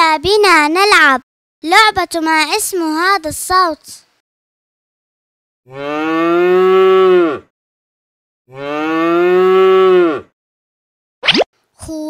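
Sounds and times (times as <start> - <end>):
cow mooing: 5.7 - 7.5, 8.5 - 10.3.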